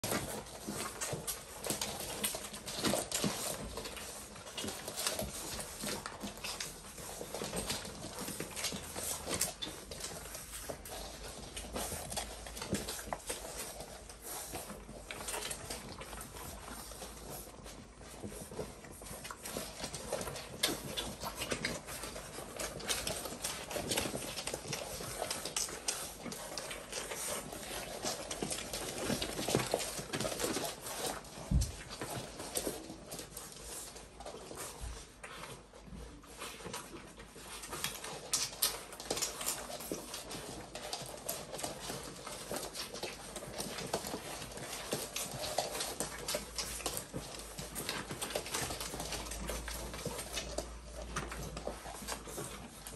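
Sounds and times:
puppies suckling: 0.0s - 52.9s.

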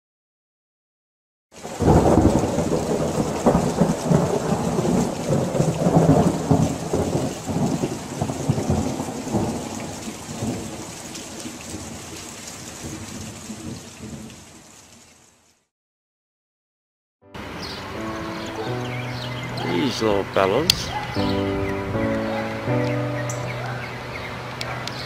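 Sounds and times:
steady rain: 1.5s - 15.7s, 17.4s - 25.0s
thunder rumbling: 1.6s - 10.9s.

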